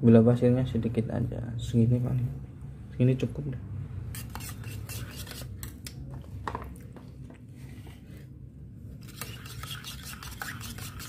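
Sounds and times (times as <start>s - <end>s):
metal spoon stirring in metal mug: 4.1s - 5.5s, 9.0s - 11.0s.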